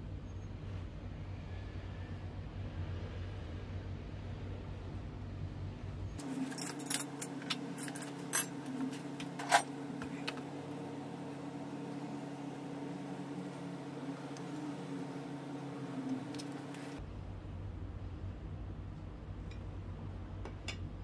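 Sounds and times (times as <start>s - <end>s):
steady low hum: 0.0s - 21.0s
small metal parts clinking: 6.2s - 8.6s.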